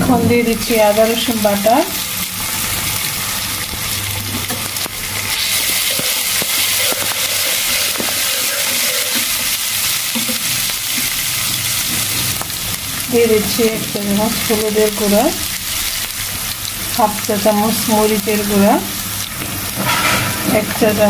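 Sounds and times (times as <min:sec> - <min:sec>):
oil sizzling in a frying pan: 0:00.0 - 0:21.0
spatula stirring and tapping pan: 0:04.3 - 0:12.6, 0:19.3 - 0:20.8.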